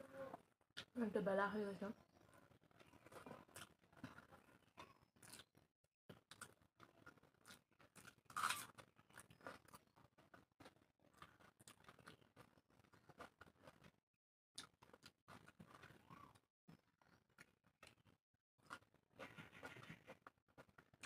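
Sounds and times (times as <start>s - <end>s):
chewing mouth clicks and smacks: 5.2s - 14.0s, 14.6s - 16.4s.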